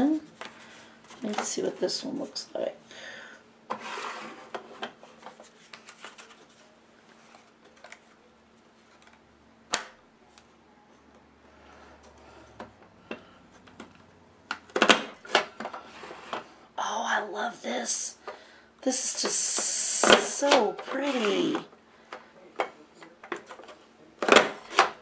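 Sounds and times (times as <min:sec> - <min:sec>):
paper rustling: 0:03.8 - 0:08.2.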